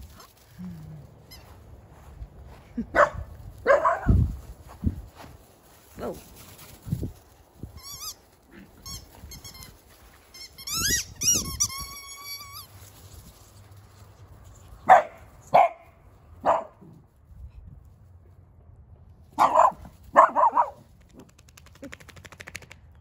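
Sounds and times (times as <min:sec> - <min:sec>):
dog barking: 0:03.0 - 0:04.2, 0:14.9 - 0:16.8, 0:19.4 - 0:20.8
high wavering squeaks: 0:07.7 - 0:12.8.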